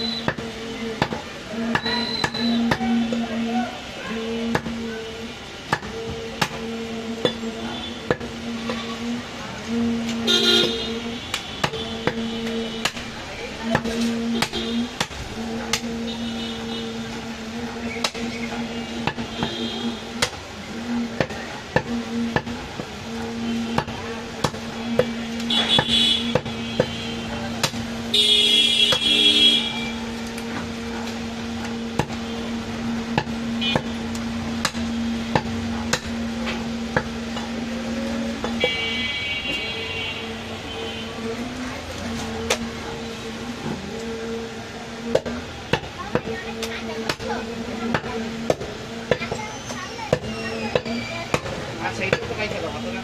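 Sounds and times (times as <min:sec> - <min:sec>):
high tone: 0:00.0 - 0:53.0
steady low hum: 0:00.0 - 0:53.0
cleaver chopping meat on wood: 0:25.7 - 0:27.0, 0:27.6 - 0:27.8.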